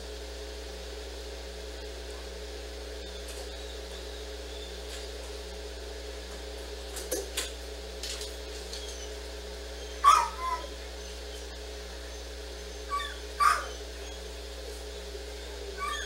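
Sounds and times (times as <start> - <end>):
steady low hum: 0.0 - 16.0
dog barking sharply: 9.9 - 10.8, 12.9 - 13.8.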